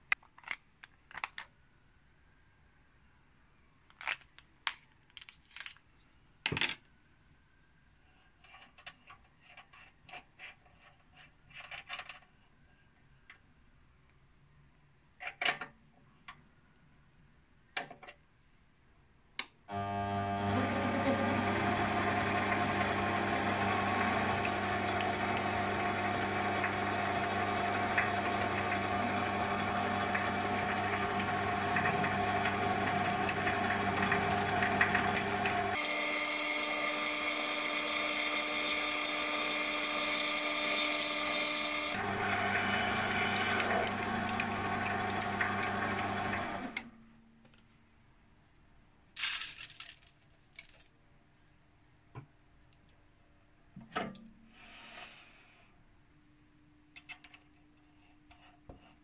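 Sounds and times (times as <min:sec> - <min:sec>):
lathe motor hum: 0:19.7 - 0:46.9
drill bit drilling brass: 0:20.4 - 0:46.8.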